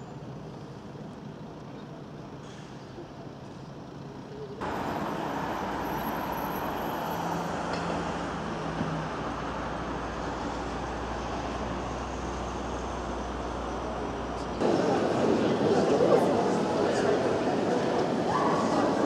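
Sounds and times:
vehicle rushing and rumbling: 4.6 - 15.2.

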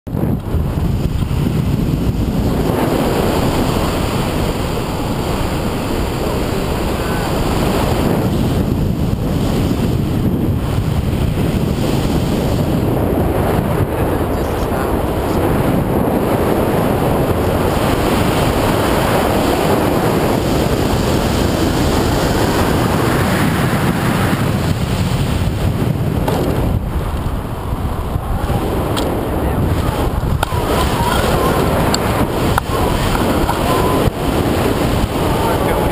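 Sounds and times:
wind buffeting microphone: 0.1 - 35.9.

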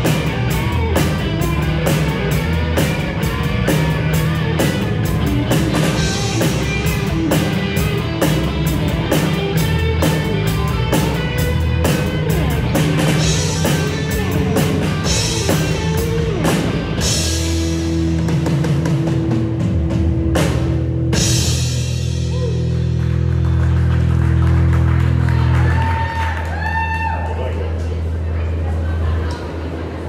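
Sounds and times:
rock band playing: 0.0 - 26.2.

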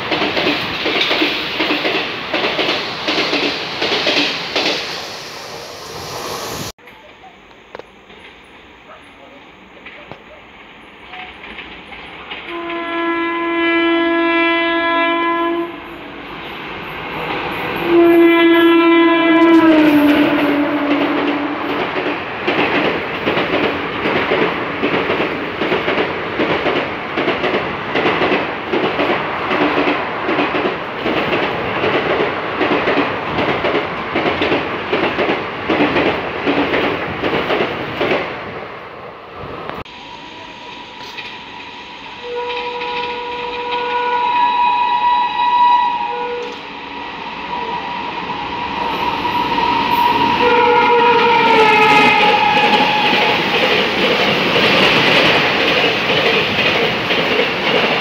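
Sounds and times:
train wheels clickety-clack: 0.0 - 5.0, 6.9 - 13.2, 19.4 - 38.5, 42.4 - 44.0, 46.4 - 46.7, 49.0 - 58.0
train horn blasts: 12.5 - 16.0, 17.8 - 21.7, 42.2 - 46.6, 49.0 - 53.4.

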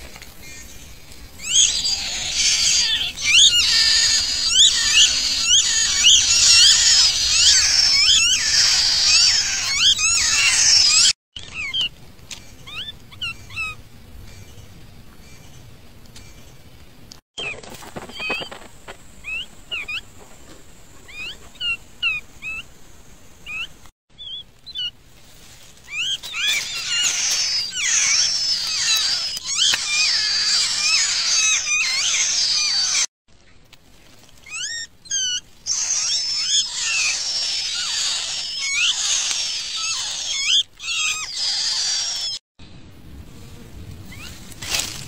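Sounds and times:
songbird chicks begging calls: 1.4 - 11.9, 25.9 - 33.1, 34.5 - 42.4.

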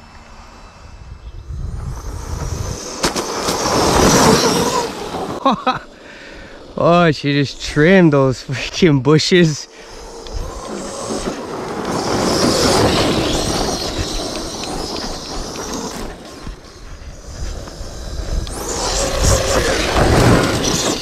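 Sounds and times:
electric motor whining: 1.5 - 5.4, 9.8 - 21.0
tyres churning through dirt: 1.6 - 21.0.

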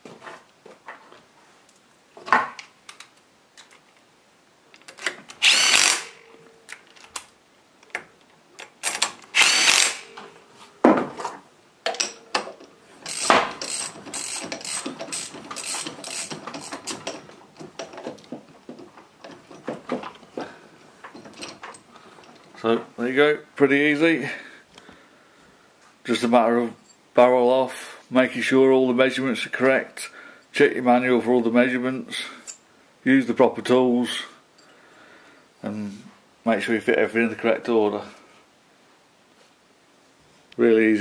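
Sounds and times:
tool whirring: 5.3 - 6.4, 8.8 - 10.3, 13.0 - 17.2.

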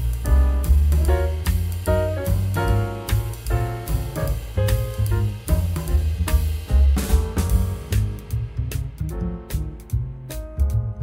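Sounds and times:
light jazz music: 0.0 - 11.0.

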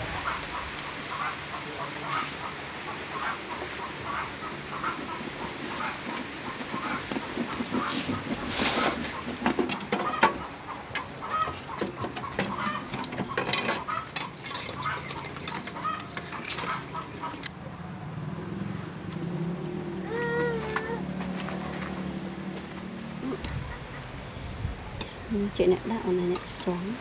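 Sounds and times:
chickens clucking: 0.0 - 17.5, 23.2 - 24.4.

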